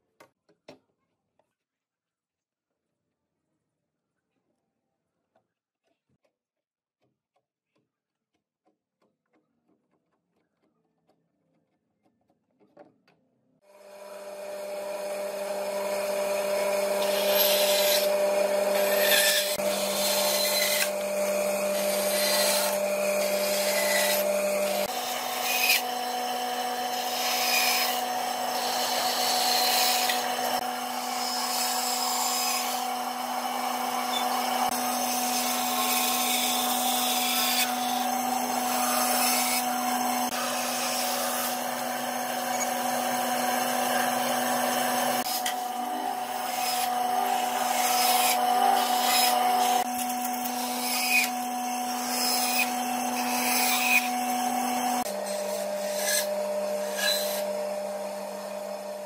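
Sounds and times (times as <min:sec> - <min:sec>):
band saw cutting wood: 0:13.7 - 0:59.0.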